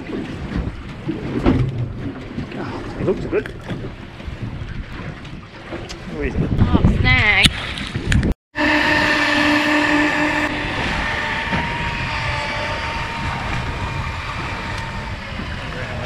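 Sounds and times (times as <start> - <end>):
churning water: 0.0 - 16.0
outboard motor whine: 8.5 - 16.0.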